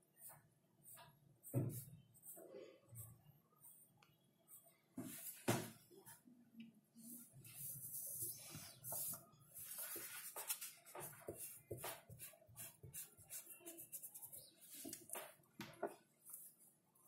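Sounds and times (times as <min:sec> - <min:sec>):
pencil scratching on paper: 0:07.5 - 0:15.1.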